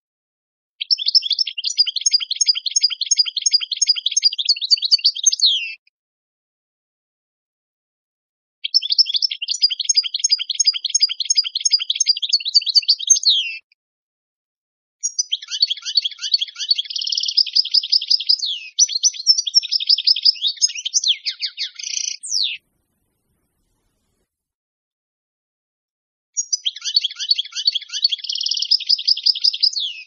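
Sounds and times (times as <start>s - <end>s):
goldfinch twittering song: 0.8s - 5.8s, 8.6s - 13.6s, 15.0s - 23.0s, 26.4s - 30.0s.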